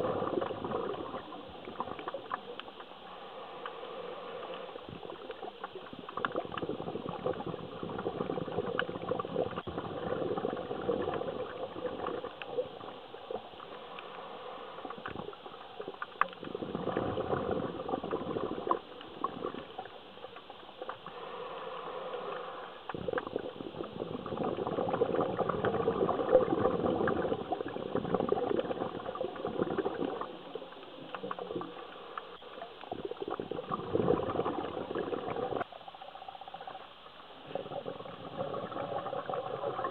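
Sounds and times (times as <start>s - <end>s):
underwater breath bubbling: 0.0s - 20.0s, 20.8s - 39.9s.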